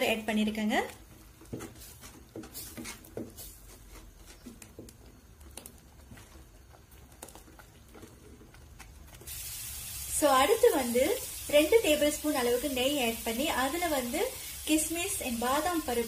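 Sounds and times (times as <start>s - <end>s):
wooden spoon scraping steel pot: 1.2s - 9.1s.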